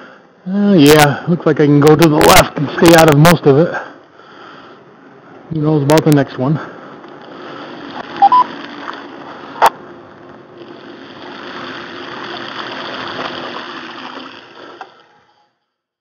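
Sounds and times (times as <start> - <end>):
bicycle tyres splashing through water: 7.3 - 15.3
short beeps: 8.2 - 8.5.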